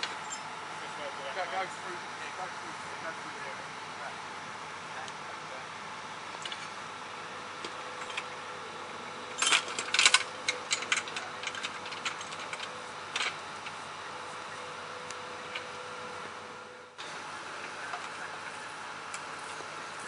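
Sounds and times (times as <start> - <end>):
steady machine hum: 0.0 - 20.0
metal equipment clinking and rattling: 9.4 - 13.4.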